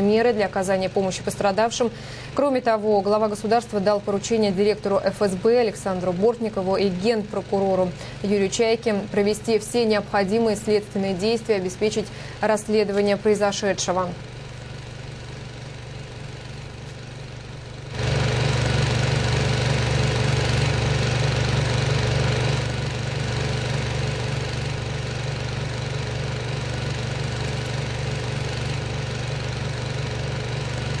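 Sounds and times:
engine rumbling: 0:13.9 - 0:31.0.

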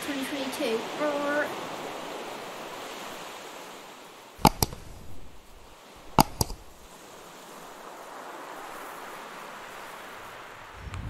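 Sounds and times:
waves lapping on a beach: 0:00.0 - 0:10.8
mouse click sound effects: 0:04.4 - 0:05.3, 0:06.1 - 0:06.8.

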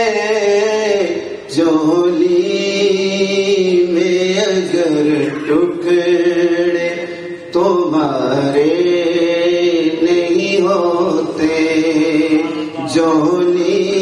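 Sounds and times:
man singing into a microphone: 0:00.0 - 0:14.0.

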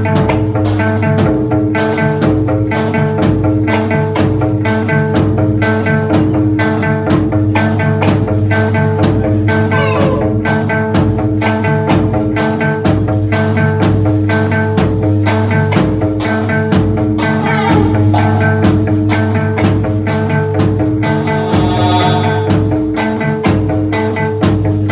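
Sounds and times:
electric guitar: 0:00.0 - 0:24.9
live rock band playing: 0:00.0 - 0:24.9
drum hits: 0:09.6 - 0:11.2, 0:17.1 - 0:23.7.

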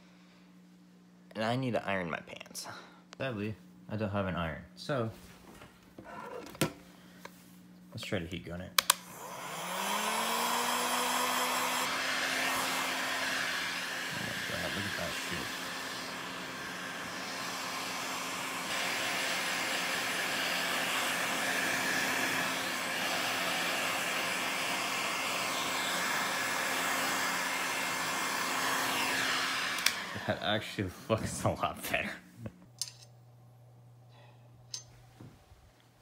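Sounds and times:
heat gun motor humming: 0:08.8 - 0:30.6
heat gun blowing hiss: 0:09.1 - 0:30.6.

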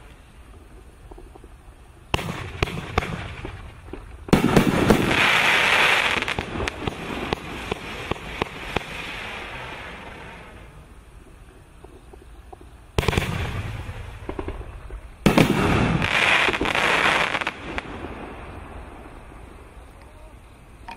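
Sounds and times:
firework pops: 0:02.1 - 0:05.4, 0:11.8 - 0:17.9
firework shots: 0:02.1 - 0:10.8, 0:11.8 - 0:19.6
firework rushing burst: 0:02.1 - 0:11.3, 0:12.9 - 0:19.8.

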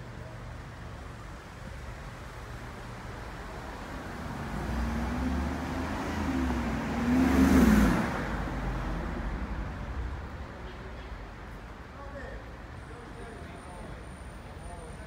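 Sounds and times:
car engine passing: 0:03.2 - 0:10.5.

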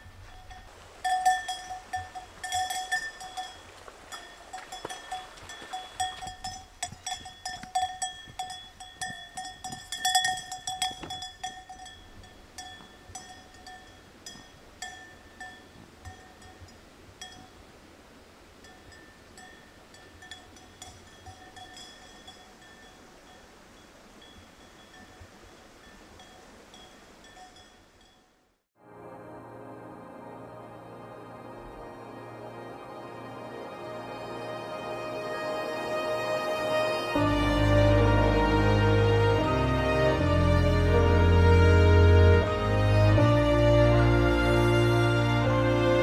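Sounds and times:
livestock neck bell clanking: 0:00.0 - 0:17.7, 0:18.6 - 0:28.4.

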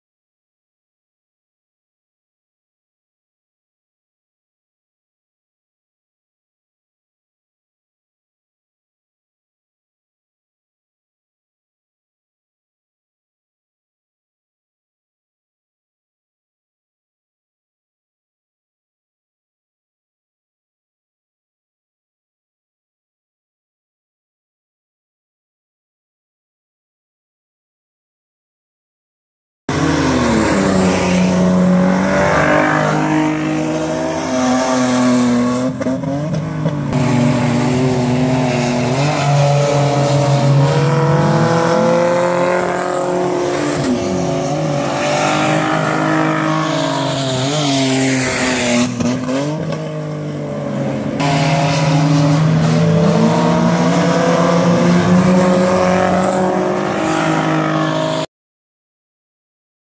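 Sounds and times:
race car engines revving: 0:29.7 - 0:58.3.

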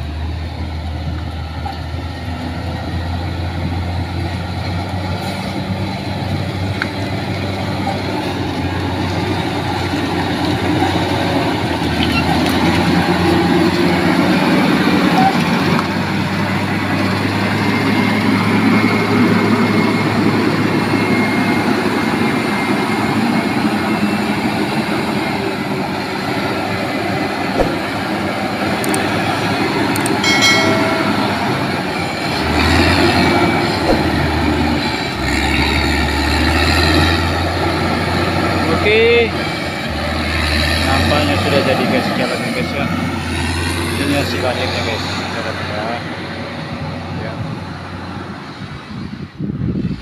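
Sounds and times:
metallic clanks: 0:30.0 - 0:31.7.

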